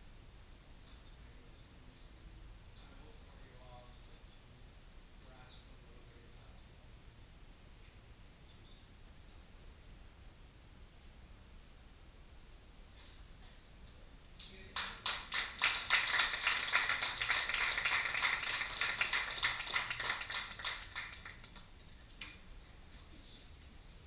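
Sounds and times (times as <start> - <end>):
audience applauding: 14.8 - 21.8.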